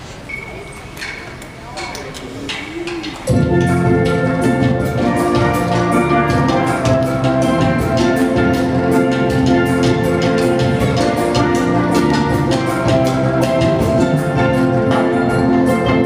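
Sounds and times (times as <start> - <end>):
drum kit with cymbals: 2.8 - 16.0
steel pan melody: 3.3 - 16.0.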